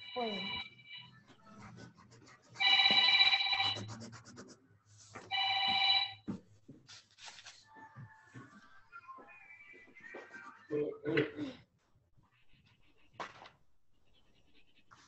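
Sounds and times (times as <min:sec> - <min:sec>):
electronic phone ringing: 0:02.6 - 0:03.8, 0:05.3 - 0:06.3.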